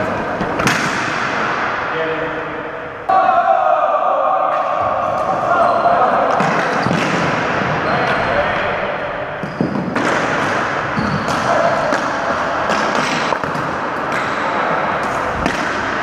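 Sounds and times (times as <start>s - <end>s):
din of players' voices: 0.0s - 9.4s
hockey sticks cracking on ball: 0.4s - 1.6s, 6.3s - 7.4s, 9.4s - 16.0s.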